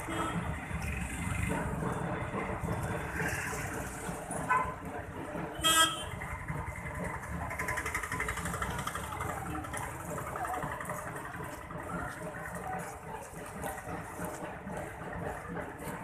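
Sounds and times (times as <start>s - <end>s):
street noise: 0.0s - 16.0s
vehicle horn tooting: 5.6s - 6.2s.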